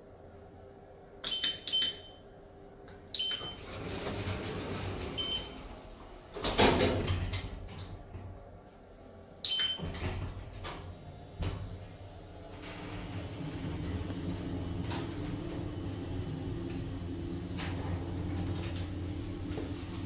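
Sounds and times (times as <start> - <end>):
lift keypad beeping: 1.2 - 2.3, 3.2 - 3.7, 4.9 - 6.0, 9.4 - 10.1
lift doors sliding shut: 3.3 - 8.4, 9.6 - 20.0.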